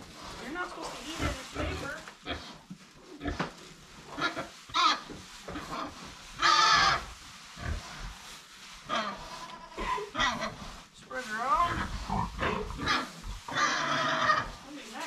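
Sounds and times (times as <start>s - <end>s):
pigs grunting and squealing: 1.1s - 3.5s, 5.6s - 8.1s, 8.9s - 10.8s, 11.6s - 14.7s.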